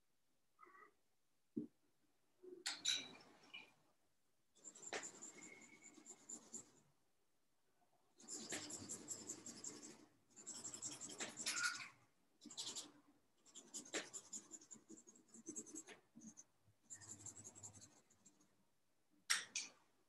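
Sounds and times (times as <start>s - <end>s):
pencil scratching on paper: 4.6s - 6.8s, 8.2s - 18.5s.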